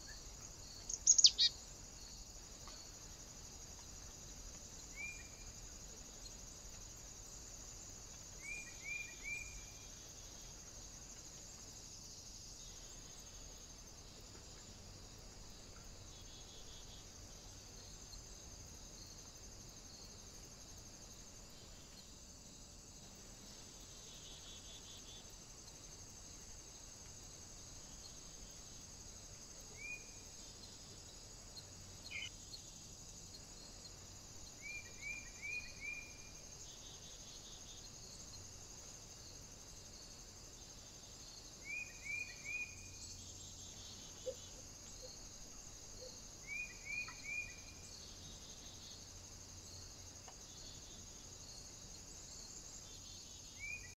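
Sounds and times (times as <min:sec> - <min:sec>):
small bird chirping: 0:00.0 - 0:01.6, 0:31.5 - 0:32.3, 0:46.0 - 0:48.1
insect chirring: 0:00.0 - 0:54.0.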